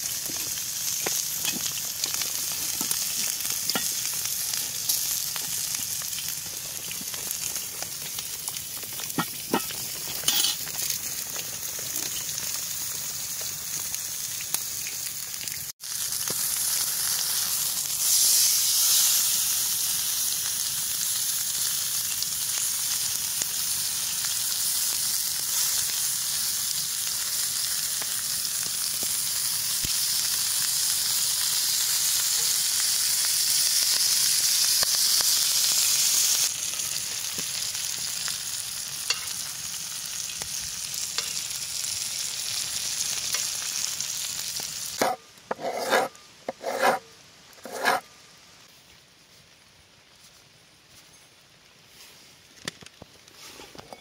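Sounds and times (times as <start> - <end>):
steak sizzling on a griddle: 0.0 - 46.0
knife cutting on a wooden board: 45.0 - 47.0, 47.6 - 48.0.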